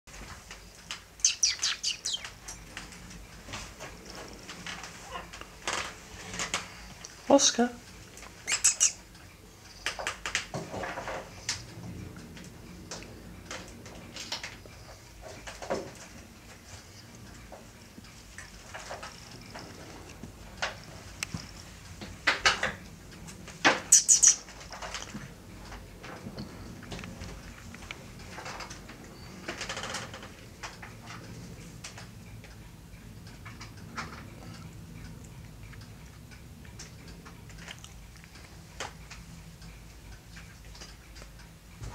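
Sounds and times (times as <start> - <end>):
light clicks and ticks: 24.5 - 41.9.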